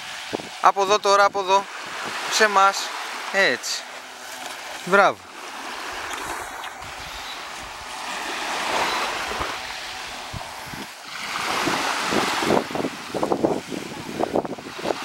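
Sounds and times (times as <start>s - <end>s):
wind buffeting microphone: 0.0s - 0.6s, 5.8s - 15.0s
waves breaking on beach: 0.0s - 15.0s.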